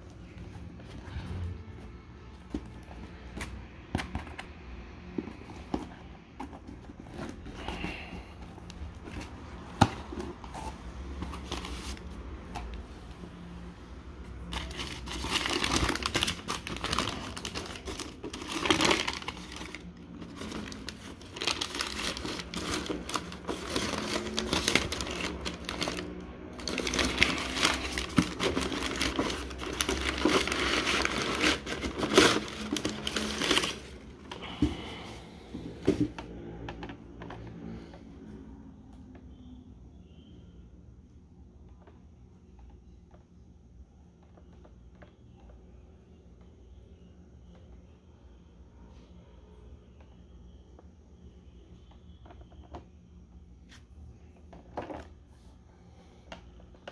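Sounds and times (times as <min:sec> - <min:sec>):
packing paper crumpling: 0:14.4 - 0:34.6.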